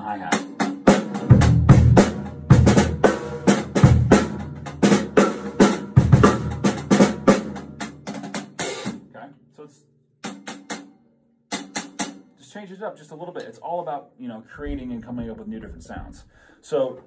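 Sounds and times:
drum kit groove: 0.0 - 9.2, 10.2 - 10.9, 11.5 - 12.6.

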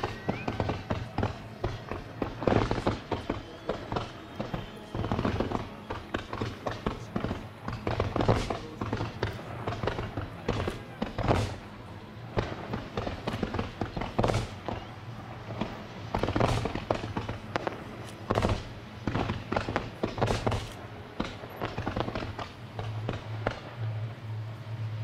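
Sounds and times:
fireworks bangs and crackles: 0.0 - 25.0
steady low hum: 6.5 - 25.0.

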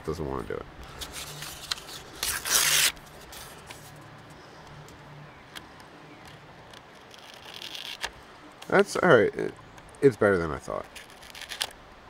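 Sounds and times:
paper rustling against blade: 0.8 - 4.0, 6.7 - 8.1, 10.8 - 11.7.

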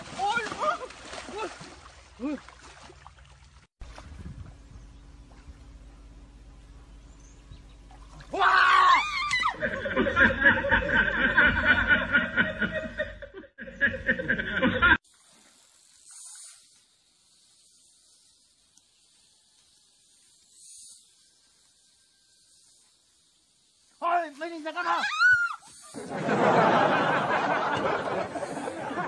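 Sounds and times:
person shrieking: 8.3 - 9.6, 24.8 - 25.7
person laughing: 9.4 - 15.0.

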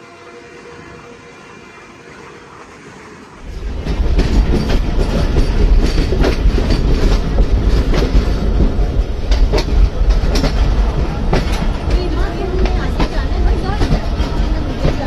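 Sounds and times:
train rumble: 0.0 - 15.0
wheels clacking over rail joints: 3.3 - 15.0.

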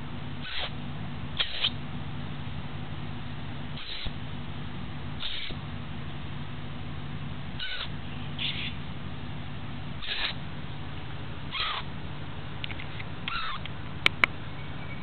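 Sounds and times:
steady low hum: 0.0 - 15.0
nestling bird begging calls: 0.4 - 0.7, 3.8 - 4.2, 5.2 - 5.6, 7.6 - 8.8, 10.0 - 10.4, 11.5 - 11.9, 13.3 - 13.6.

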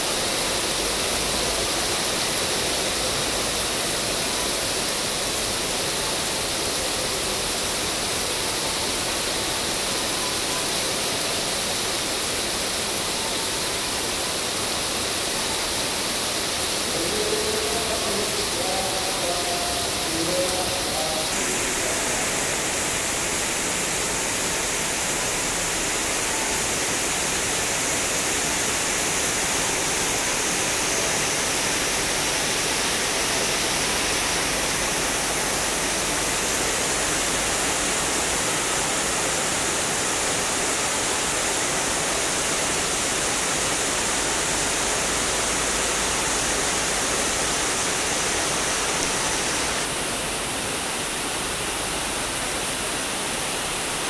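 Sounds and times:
heavy rain hiss: 0.0 - 54.0.

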